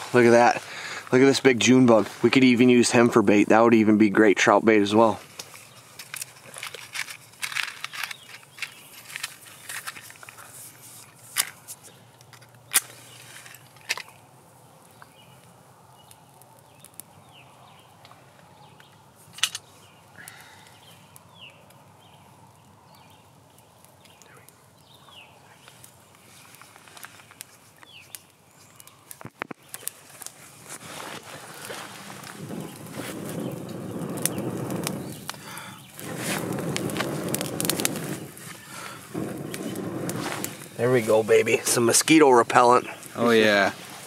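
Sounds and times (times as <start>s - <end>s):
dry twigs snapping: 5.2s - 41.9s
match being struck: 5.3s - 14.2s, 36.0s - 38.6s.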